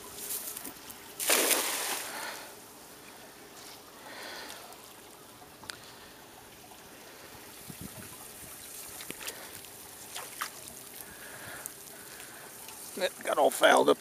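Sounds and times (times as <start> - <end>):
faint water noise: 0.0 - 14.0
cast net splashing into water: 1.2 - 2.4, 8.6 - 11.2.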